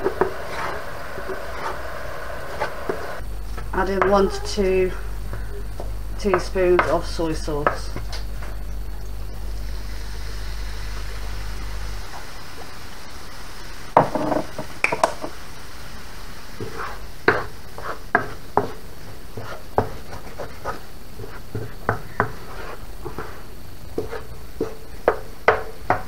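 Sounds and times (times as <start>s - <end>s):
wooden spoon scraping a pan: 0.0s - 4.2s, 16.5s - 25.2s
steady hiss: 0.0s - 26.0s.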